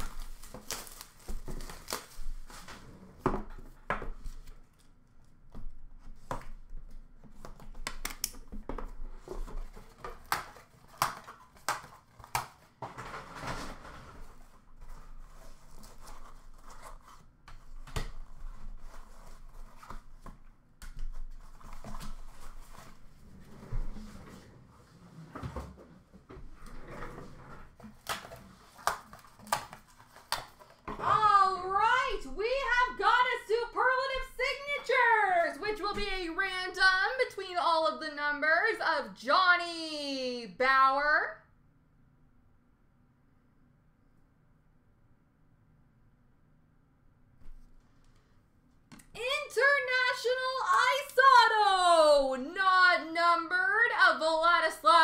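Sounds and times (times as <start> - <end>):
plastic wrap and cardboard handled: 0.0 - 3.0, 8.8 - 24.2.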